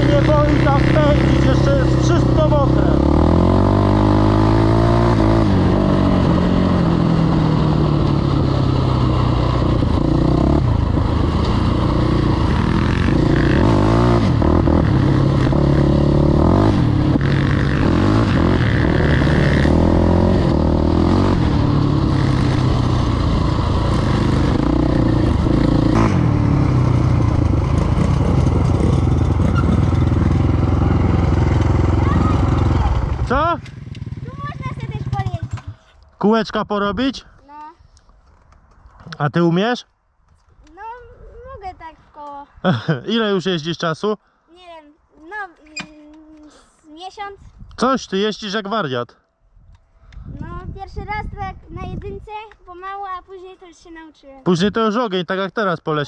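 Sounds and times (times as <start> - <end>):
quad engine revving: 0.0 - 35.8.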